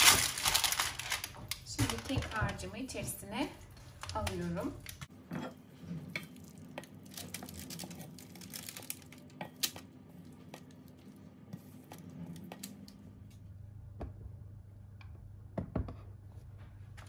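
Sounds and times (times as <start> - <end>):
paper crinkling: 0.0 - 2.6, 6.4 - 9.8.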